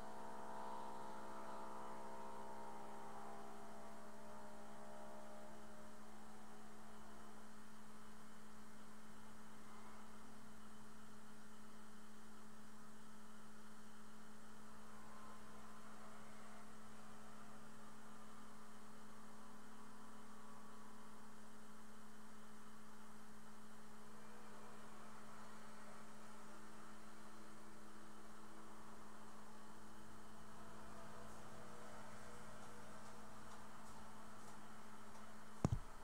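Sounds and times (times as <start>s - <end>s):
faint high tones: 0.0s - 12.1s, 13.2s - 22.8s.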